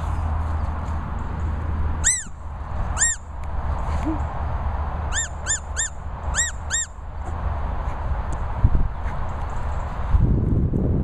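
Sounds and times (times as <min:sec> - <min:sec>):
squeaky dog toy squeaks: 0:02.0 - 0:02.4, 0:03.0 - 0:03.2, 0:05.1 - 0:06.9.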